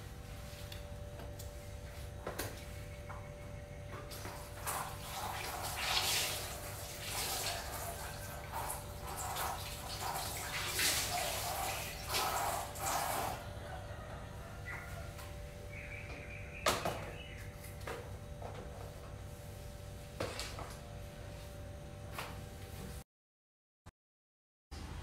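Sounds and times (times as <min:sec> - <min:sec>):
tap water splashing into sink: 0:04.6 - 0:13.2.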